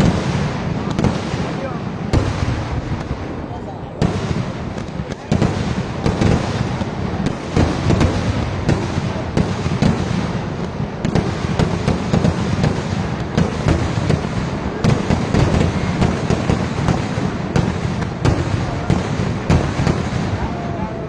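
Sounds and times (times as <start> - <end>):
fireworks bangs and crackling: 0.0 - 21.0.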